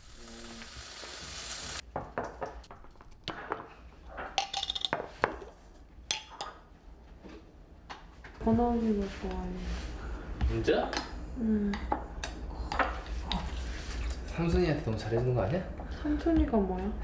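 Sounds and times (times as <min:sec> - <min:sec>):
hiss: 0:00.0 - 0:01.8.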